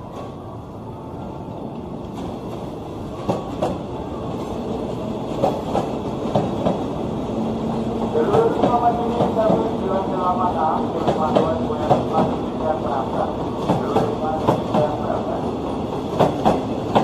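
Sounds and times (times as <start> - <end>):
train rumbling past: 0.0 - 17.0
train wheels clicking over rail joints: 16.0 - 17.0.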